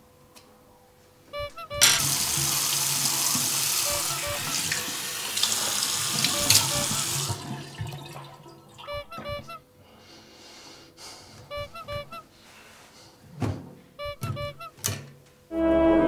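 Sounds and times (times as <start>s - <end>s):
water splashing in basin: 2.0s - 9.0s
tap running into sink: 4.5s - 8.6s.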